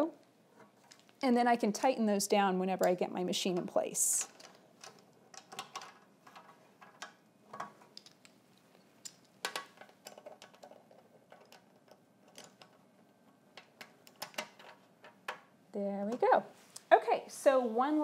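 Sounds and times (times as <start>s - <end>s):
metal parts clicking and knocking: 4.1s - 12.9s, 13.5s - 15.4s.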